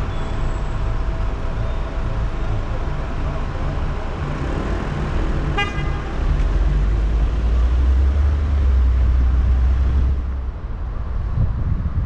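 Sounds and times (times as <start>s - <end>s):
road and engine rumble: 0.0s - 12.0s
car horn toot: 5.6s - 6.1s.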